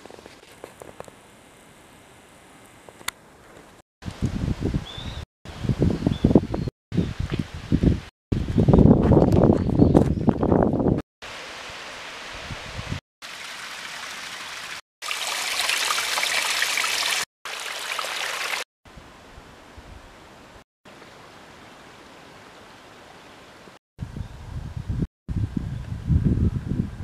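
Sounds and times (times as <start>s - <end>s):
stream trickling over rocks: 13.2s - 18.6s.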